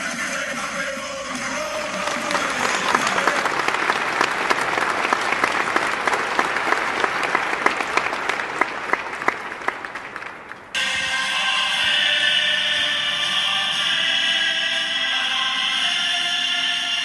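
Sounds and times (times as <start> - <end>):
applause: 1.3 - 10.8.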